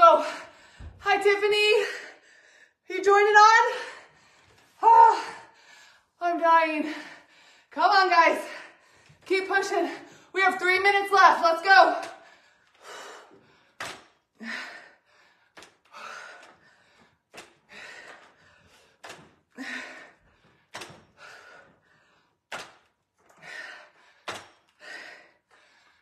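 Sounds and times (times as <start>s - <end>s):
dumbbells thunking on floor: 17.3s - 21.6s, 24.2s - 24.7s.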